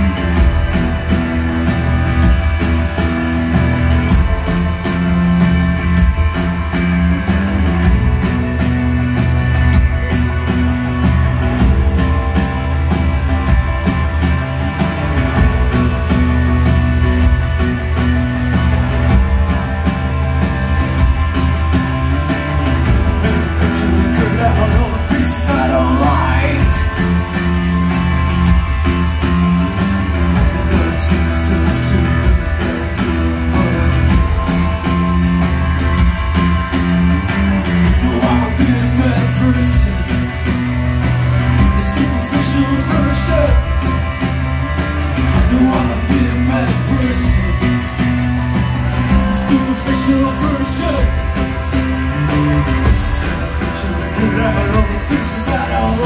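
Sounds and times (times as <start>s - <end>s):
driving drum beat: 0.0s - 56.0s
live rock band playing: 0.0s - 56.0s
person singing: 23.2s - 27.2s, 37.9s - 40.3s, 45.4s - 47.8s, 52.9s - 56.0s.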